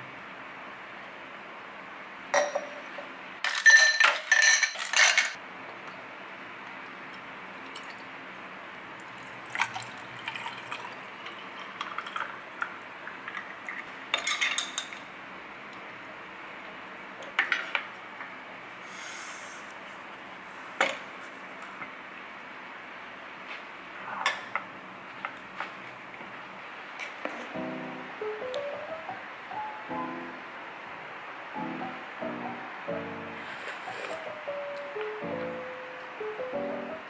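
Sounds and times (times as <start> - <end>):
glass and ice clinking: 2.4 - 5.4.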